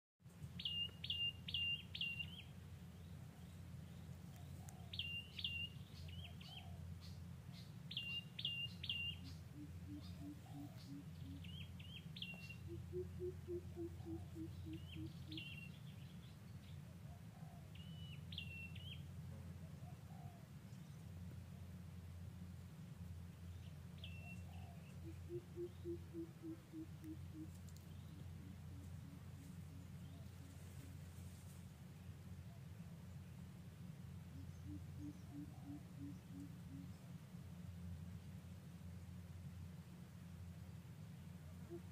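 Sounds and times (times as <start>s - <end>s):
low steady hum: 0.2s - 41.9s
faint low hoots: 9.2s - 11.7s, 12.3s - 15.7s, 24.2s - 31.0s, 34.3s - 37.2s, 41.4s - 41.9s.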